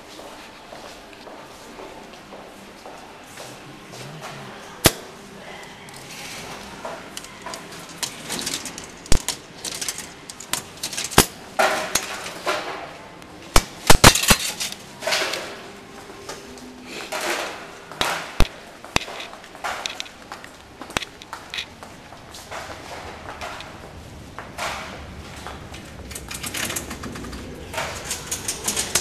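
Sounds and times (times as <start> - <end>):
coins clinking into machine slot: 7.2 - 12.4, 26.1 - 29.0.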